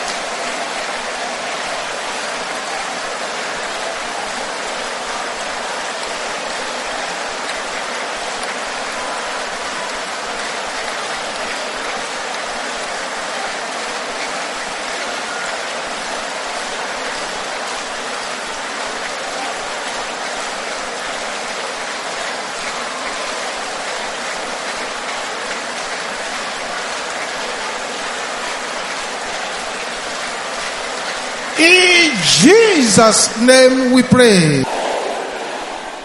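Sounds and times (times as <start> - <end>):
congregation praying aloud: 31.5 - 36.0.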